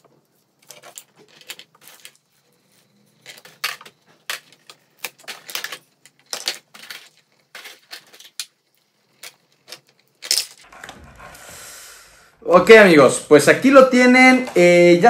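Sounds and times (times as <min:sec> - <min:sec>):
plastic clicks and crinkles: 0:00.0 - 0:02.5, 0:03.1 - 0:10.7.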